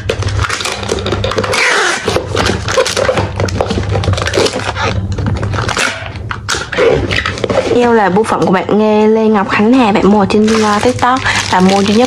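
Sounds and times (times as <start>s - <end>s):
packing tape ripping off dispenser: 0.0s - 7.7s, 10.3s - 12.0s.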